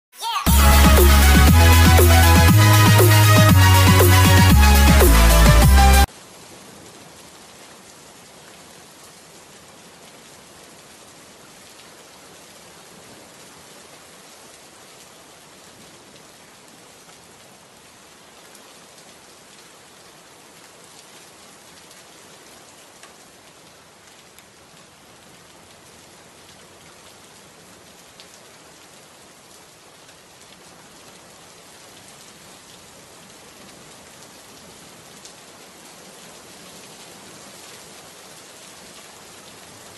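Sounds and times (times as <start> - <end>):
heavy rain on wet paving: 0.5 - 39.9
raindrop ticks: 23.0 - 23.2.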